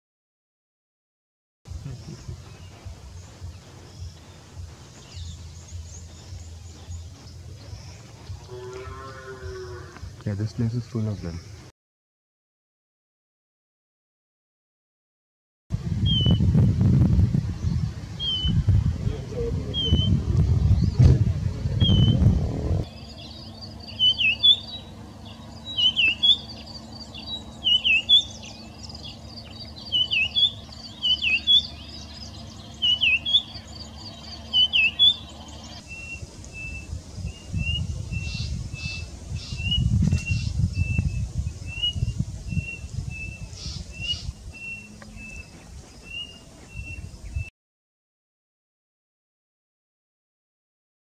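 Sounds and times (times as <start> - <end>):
low wind rumble: 1.7 - 11.7, 15.7 - 47.5
bird whistled phrases: 19.7 - 20.2, 21.8 - 22.2, 25.7 - 26.6, 27.6 - 28.4, 34.5 - 35.2.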